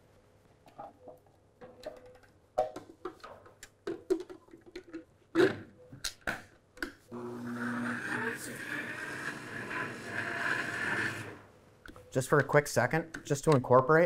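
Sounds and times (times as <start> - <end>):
food processor motor humming: 7.1 - 11.5.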